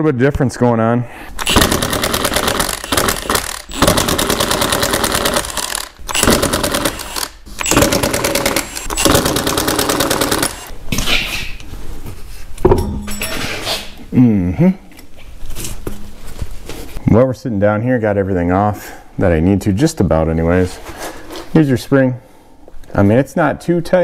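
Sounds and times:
impact wrench hammering: 1.4 - 10.7.

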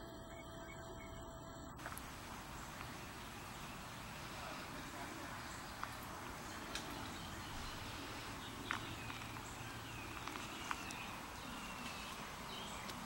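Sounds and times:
steady low hiss: 0.0 - 13.0
high bird chirps: 1.9 - 13.0.

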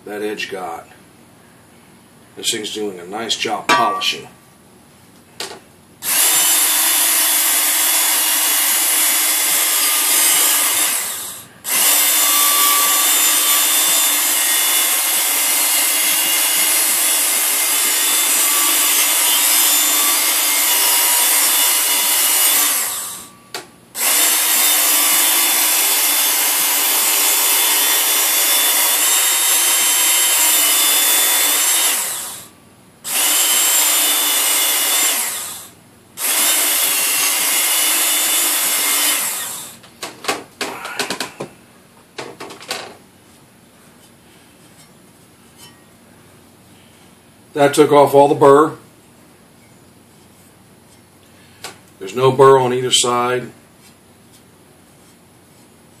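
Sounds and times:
electric belt sharpener running: 6.0 - 23.3, 24.0 - 32.5, 33.1 - 39.8
shovel edge grinding on belt: 44.0 - 45.8.

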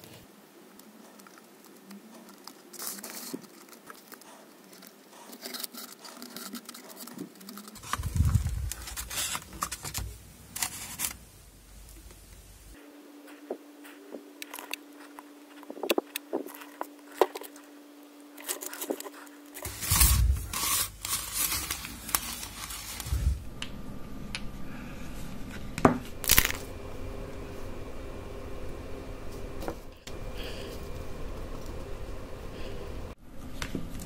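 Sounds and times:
faint steady hum: 0.0 - 34.0
foam rustling and scraping: 1.0 - 11.3, 18.4 - 23.5.

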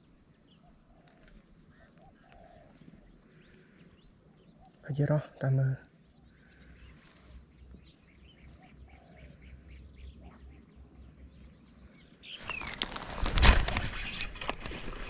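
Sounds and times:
high insect whine: 0.0 - 15.0.

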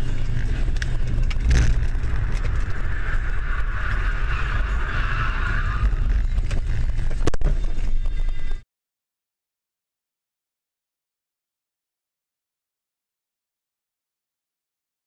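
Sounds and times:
road and engine rumble: 0.0 - 8.6.

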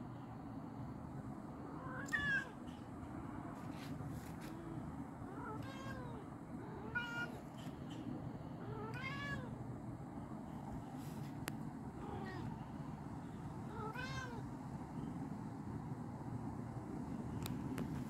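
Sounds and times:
cat meowing: 1.8 - 2.6, 5.3 - 7.4, 8.6 - 9.6, 12.0 - 12.6, 13.7 - 14.4.

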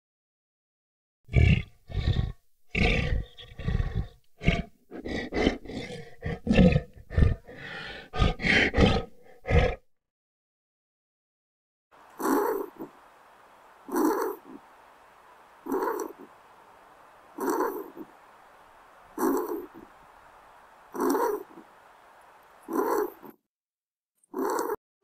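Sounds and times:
tiger roaring and growling: 8.1 - 9.8, 12.1 - 23.3, 24.4 - 24.8.

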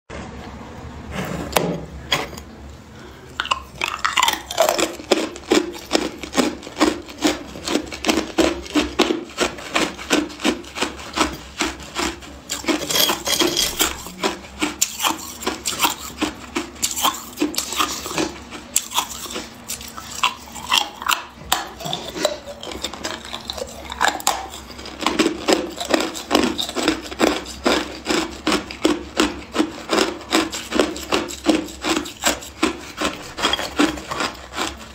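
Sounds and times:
ice being chewed: 3.0 - 34.9.

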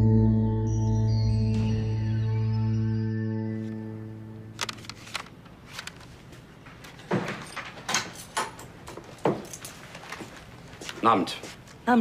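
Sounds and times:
soft music: 0.0 - 5.0
objects knocked and set down: 6.9 - 9.8.

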